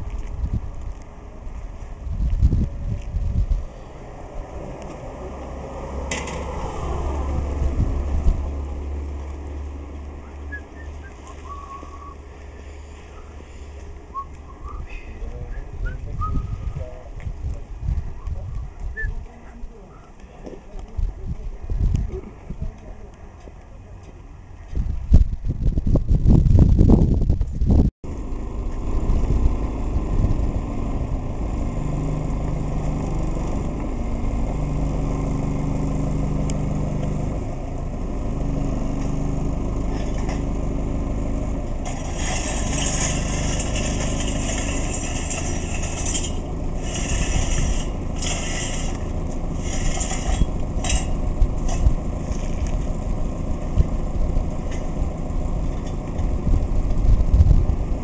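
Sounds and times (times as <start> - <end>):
engine low rumble: 0.0 - 58.0
low hum: 25.2 - 58.0.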